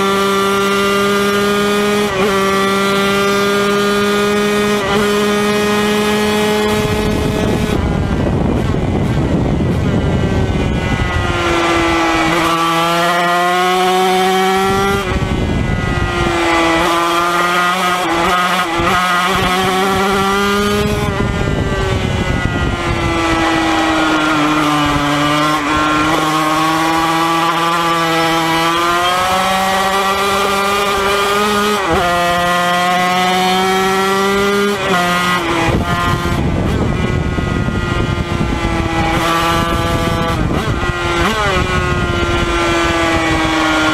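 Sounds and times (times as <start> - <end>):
racing motorcycle engine revving: 0.0 - 43.9.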